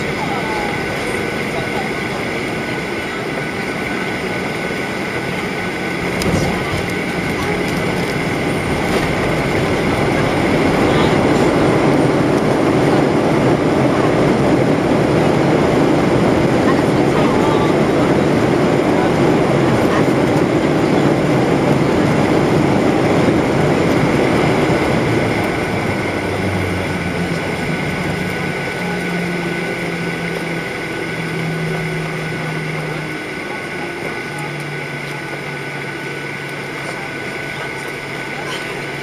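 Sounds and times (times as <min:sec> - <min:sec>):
airliner cabin engine rush: 0:00.0 - 0:39.0.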